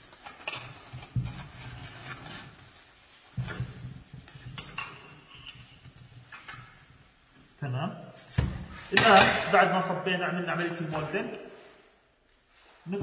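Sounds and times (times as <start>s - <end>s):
metal trowel scraping and clinking: 0.0s - 2.7s.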